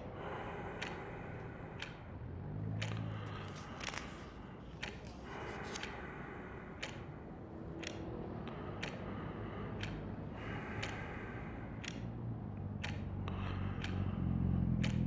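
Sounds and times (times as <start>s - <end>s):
clock ticking: 0.0s - 15.0s
faint small clicks: 2.7s - 6.2s, 6.8s - 7.1s, 7.7s - 9.2s, 10.8s - 11.0s, 11.8s - 14.2s, 14.8s - 15.0s.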